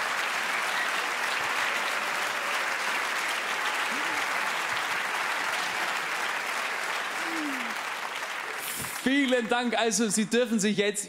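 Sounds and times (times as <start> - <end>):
audience applauding: 0.0 - 10.2.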